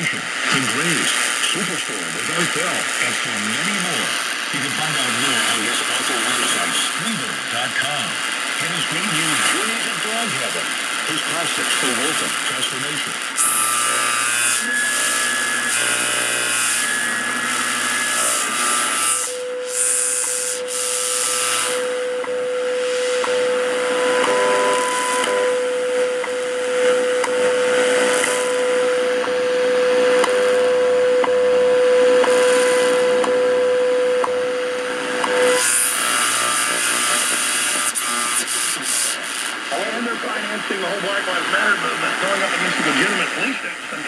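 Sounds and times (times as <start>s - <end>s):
radio static hiss: 0.0s - 15.8s, 22.7s - 44.0s.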